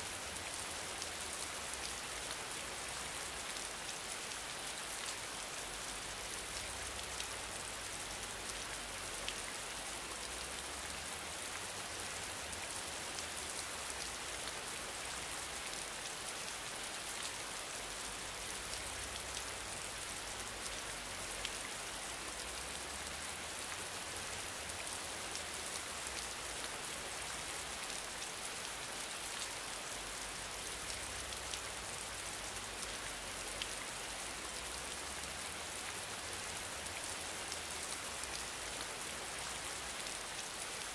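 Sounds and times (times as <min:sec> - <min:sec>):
steady rain hiss: 0:00.0 - 0:40.9.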